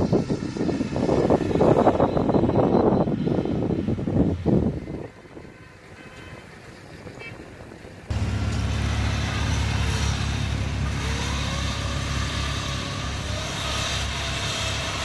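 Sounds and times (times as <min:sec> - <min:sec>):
diesel engine droning: 0:00.0 - 0:15.0.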